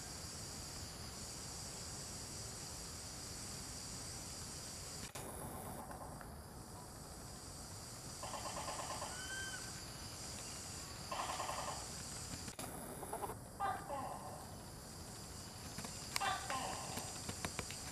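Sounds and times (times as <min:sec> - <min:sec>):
pulsing buzzy insect calls: 0:00.0 - 0:17.9
insects shrilling in chorus: 0:07.2 - 0:17.9.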